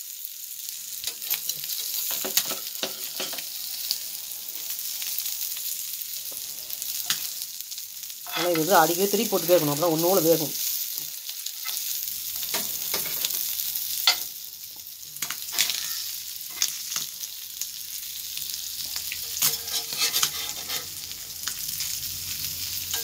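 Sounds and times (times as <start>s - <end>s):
fish sizzling in oil: 0.0s - 23.0s
metal spatula scraping pan: 8.3s - 8.8s, 15.4s - 17.1s, 19.2s - 21.2s.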